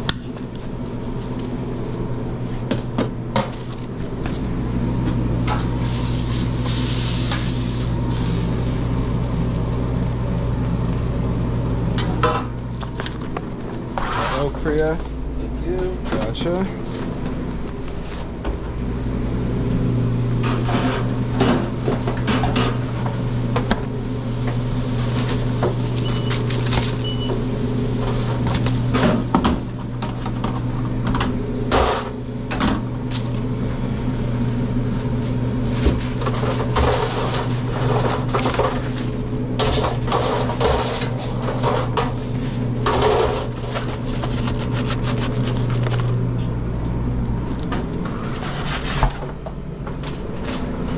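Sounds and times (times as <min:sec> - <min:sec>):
low machine hum: 0:00.0 - 0:50.9
paper crinkling: 0:25.0 - 0:27.1, 0:43.6 - 0:46.3.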